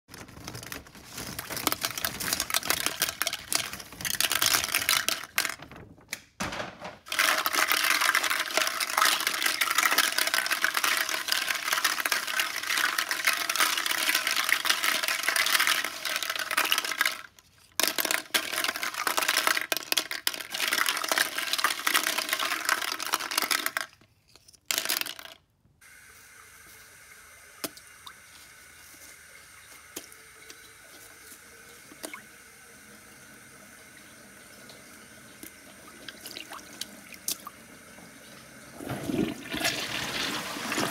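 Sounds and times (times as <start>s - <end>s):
plastic eggs clattering: 0.1s - 25.5s, 38.8s - 40.9s
toilet flushing: 7.0s - 17.3s, 25.8s - 40.9s.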